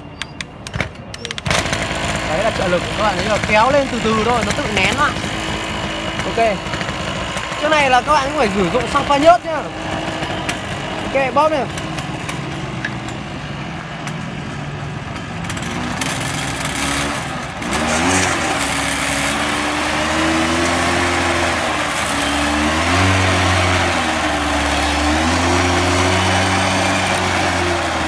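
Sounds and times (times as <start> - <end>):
lawn mower engine revving: 1.1 - 28.0.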